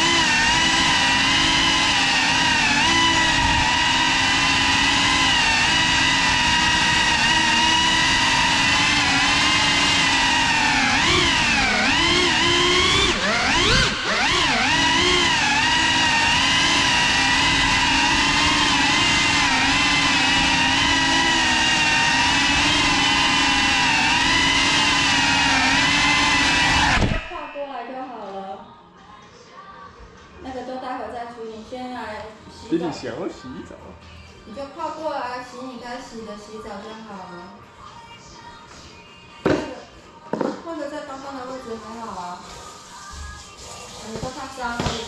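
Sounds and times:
drone motors whining: 0.0s - 27.6s.

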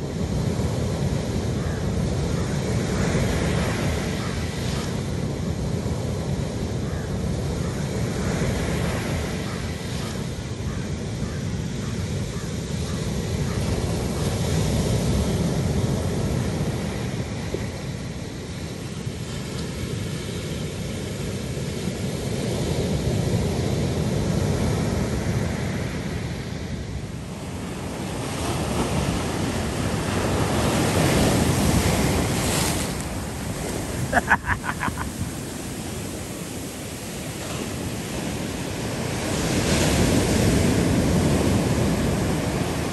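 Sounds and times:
surf breaking on beach: 27.3s - 42.9s.

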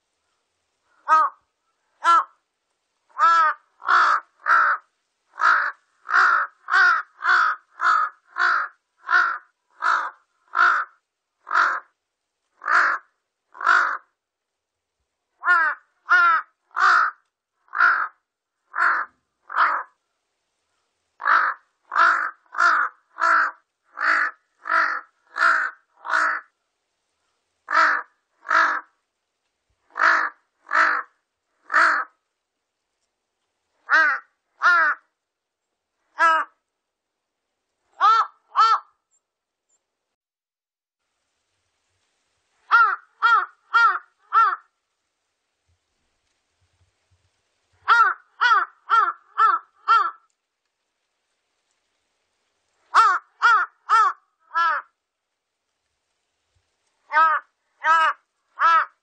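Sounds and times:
crow cawing: 0.9s - 2.4s, 3.1s - 12.0s, 12.6s - 14.2s, 15.4s - 20.0s, 21.2s - 26.6s, 27.7s - 29.0s, 29.9s - 32.2s, 33.8s - 35.1s, 36.1s - 36.6s, 38.0s - 39.0s, 42.7s - 44.7s, 47.8s - 50.3s, 52.9s - 55.0s, 57.1s - 59.0s.

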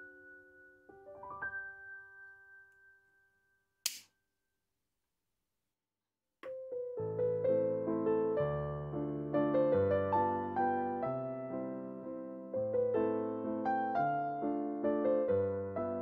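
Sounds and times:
solo piano music: 0.0s - 3.2s, 6.4s - 16.0s
short sharp click: 3.8s - 4.1s.

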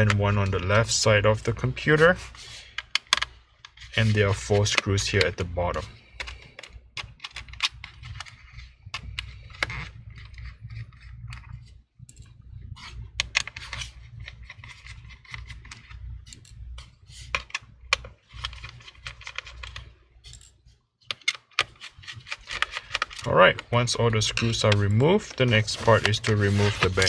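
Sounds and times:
low rumble of laptop handling: 0.0s - 20.4s.

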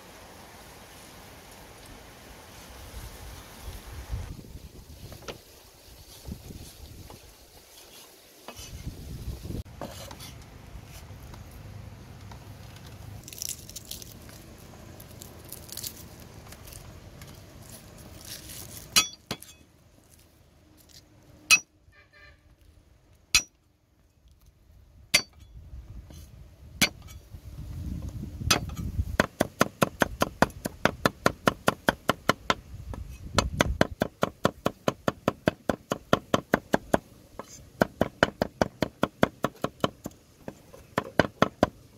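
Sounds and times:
cleaver chopping on wooden block: 28.5s - 41.8s.

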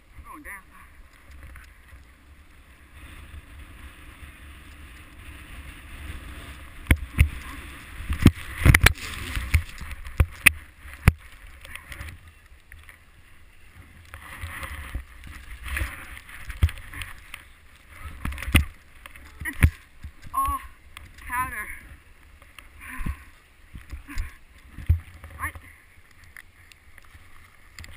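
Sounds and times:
wind rumble on microphone: 0.0s - 27.9s
snow swooshing under snowboard: 0.9s - 24.9s.

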